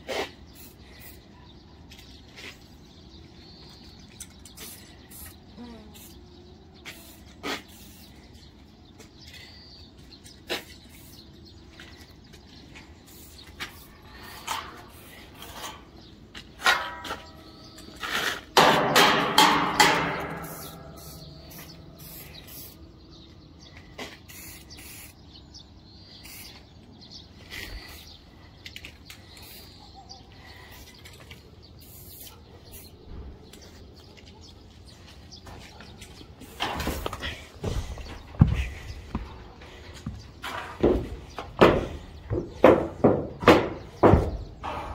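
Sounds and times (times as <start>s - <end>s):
loud metallic clang: 18.6s - 21.1s
footsteps on metal roof: 33.0s - 44.9s.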